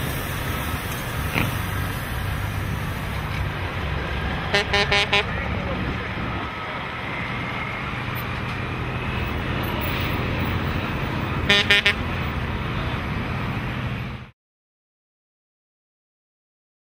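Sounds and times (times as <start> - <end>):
truck diesel engine pulling away: 0.0 - 14.3
air horn blasts: 4.5 - 5.5, 11.4 - 12.1.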